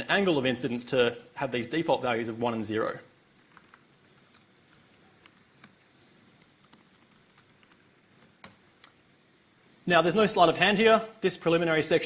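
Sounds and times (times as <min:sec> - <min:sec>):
typing on computer keyboard: 0:03.4 - 0:05.8, 0:06.4 - 0:08.9.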